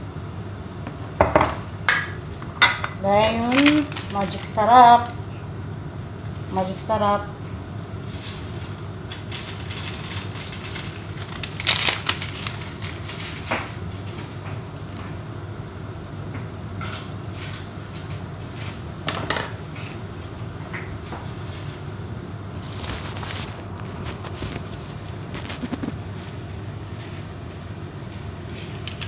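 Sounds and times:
steady low hum: 0:00.0 - 0:29.0
plastic rustling and clicking: 0:03.5 - 0:05.2, 0:08.1 - 0:13.8, 0:22.6 - 0:26.4.

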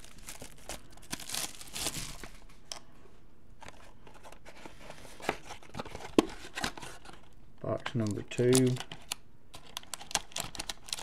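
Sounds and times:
plastic wrapping crinkling: 0:00.0 - 0:02.5, 0:09.6 - 0:11.0.

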